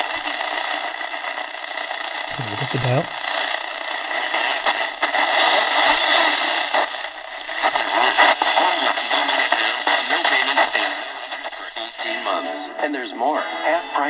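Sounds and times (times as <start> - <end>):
radio crackles: 0.0 - 12.8
radio static and hiss: 0.0 - 14.0
faint radio voice: 2.3 - 3.3.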